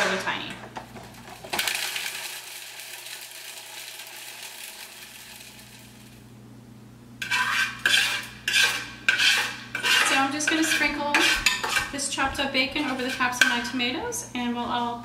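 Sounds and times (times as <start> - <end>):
utensil scraping plastic bowl: 7.2 - 13.8.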